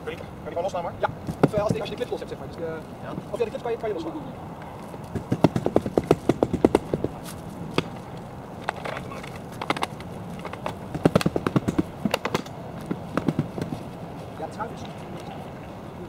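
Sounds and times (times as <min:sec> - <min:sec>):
canoe frame tubes clattering: 0:04.8 - 0:14.4.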